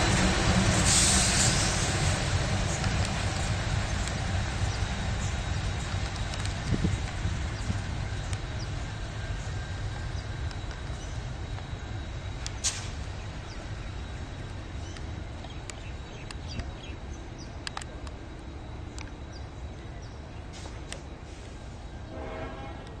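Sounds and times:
diesel locomotive engine rumble: 0:00.0 - 0:23.0.

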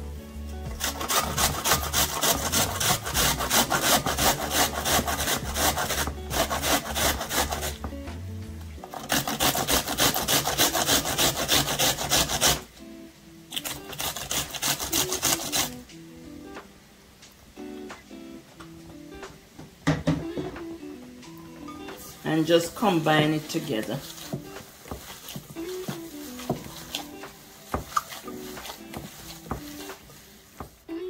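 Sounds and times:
onion rasping on metal grater: 0:00.7 - 0:07.9, 0:08.8 - 0:12.6, 0:13.5 - 0:15.8, 0:23.4 - 0:30.3.

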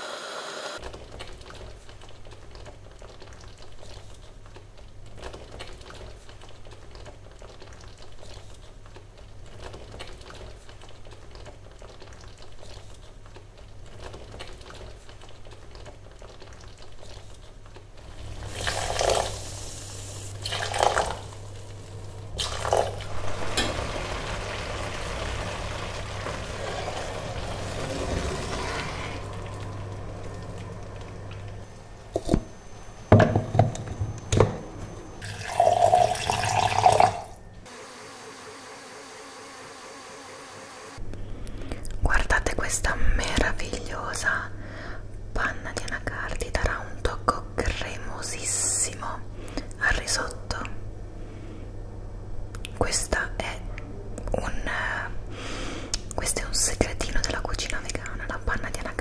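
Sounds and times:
risotto bubbling in a pan: 0:22.9 - 0:31.1.

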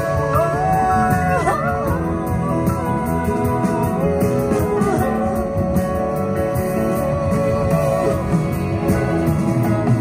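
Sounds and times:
band accompaniment with guitar: 0:00.0 - 0:10.0.

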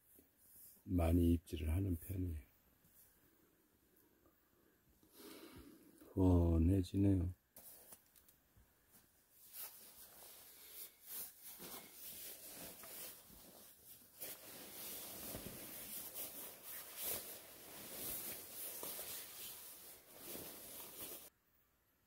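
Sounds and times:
scratchy rustling and rubbing: 0:09.0 - 0:21.3.

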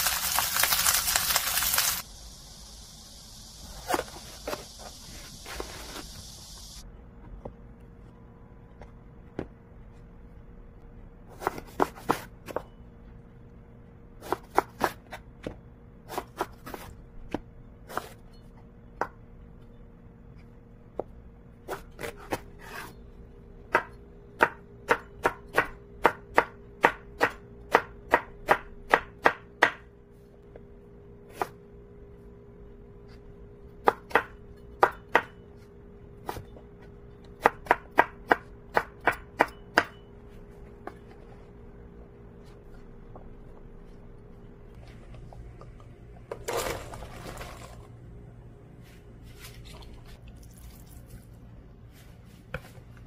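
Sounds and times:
knife chopping on wooden board: 0:11.3 - 0:12.6.

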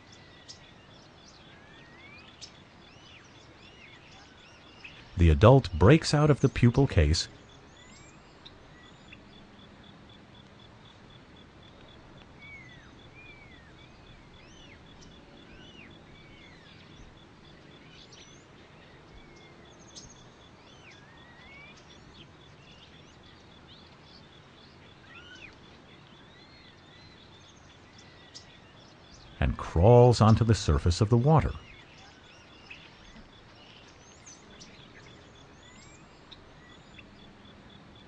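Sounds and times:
low hiss: 0:04.9 - 0:07.4, 0:29.2 - 0:31.8.

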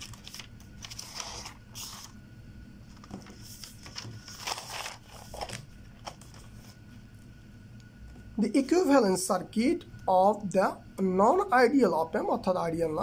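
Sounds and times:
paper rustling and crinkling: 0:00.0 - 0:02.2, 0:02.9 - 0:06.8.

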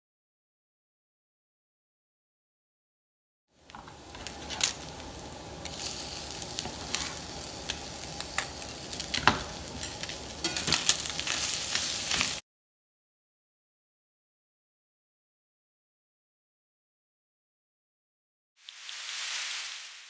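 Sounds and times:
food sizzling in skillet: 0:03.6 - 0:12.4, 0:18.6 - 0:20.0.

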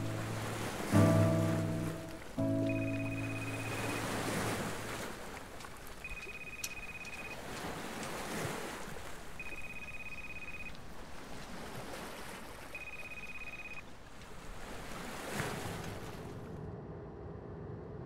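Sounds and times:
waves washing against boat: 0:00.0 - 0:16.6
wind on water: 0:00.0 - 0:18.0
high steady beep: 0:02.5 - 0:04.2, 0:06.0 - 0:07.4, 0:09.4 - 0:10.7, 0:12.8 - 0:13.8.

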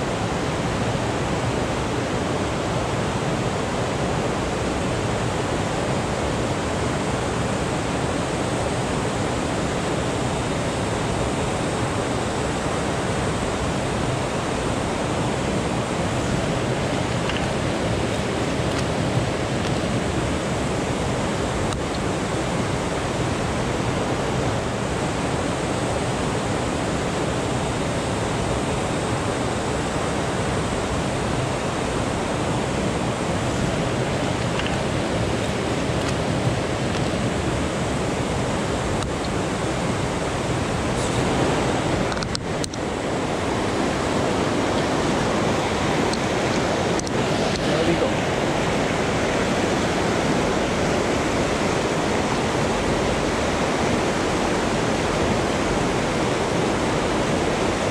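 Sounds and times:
river rushing over rocks: 0:00.0 - 0:57.9.

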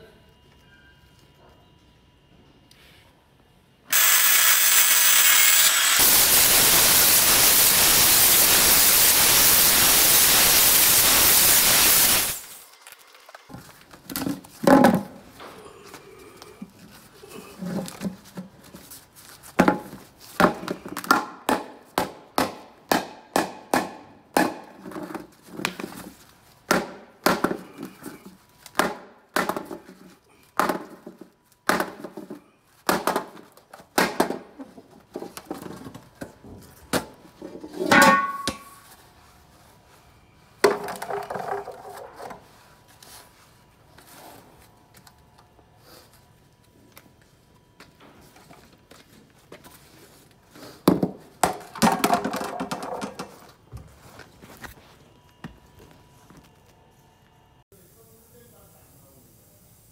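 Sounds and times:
angle grinder cutting fibreglass: 0:03.9 - 0:12.6.

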